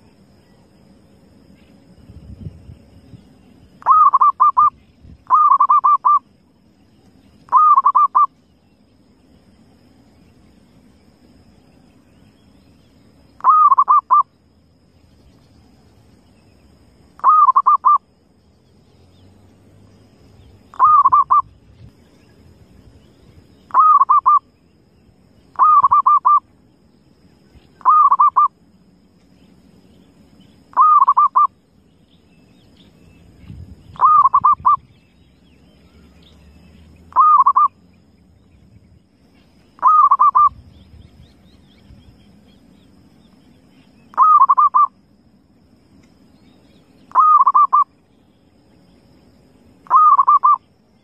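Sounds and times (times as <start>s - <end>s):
dove cooing: 3.8s - 4.7s, 5.3s - 6.2s, 7.5s - 8.3s, 13.4s - 14.2s, 17.2s - 18.0s, 20.7s - 21.5s, 23.7s - 24.4s, 25.6s - 26.4s, 27.8s - 28.5s, 30.7s - 31.5s, 34.0s - 34.8s, 37.1s - 37.7s, 39.8s - 40.6s, 44.1s - 44.9s, 47.1s - 47.9s, 49.9s - 50.6s.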